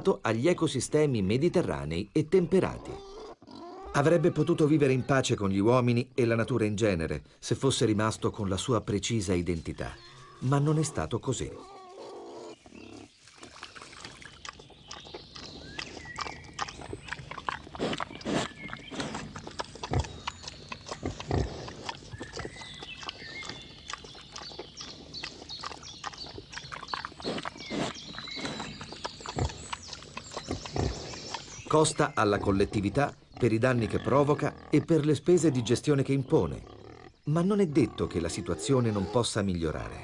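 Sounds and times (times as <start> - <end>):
pig sounds: 2.2 - 5.4, 9.8 - 40.0
crunching clicks of chewing: 13.4 - 32.0.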